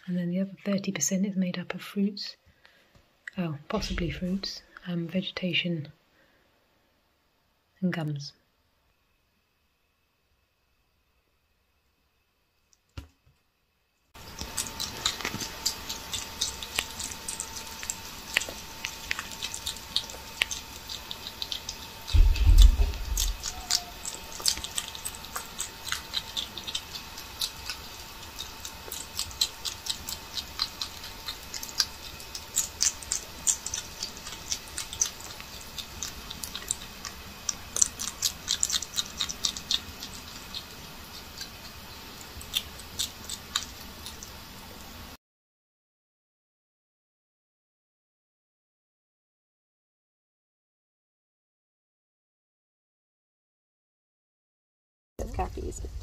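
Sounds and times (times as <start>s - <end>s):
small animals feeding clicks: 14.2s - 45.0s
low thump: 22.2s - 23.4s.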